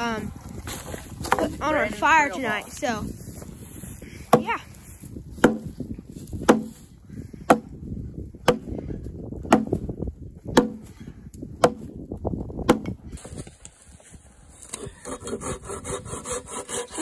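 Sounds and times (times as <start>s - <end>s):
axe chopping into log: 5.4s - 5.8s, 6.4s - 6.8s, 7.5s - 7.7s, 8.4s - 8.7s, 9.4s - 9.9s, 10.5s - 10.9s, 11.6s - 11.9s, 12.6s - 13.0s
hand saw rasping on wood: 15.0s - 17.0s.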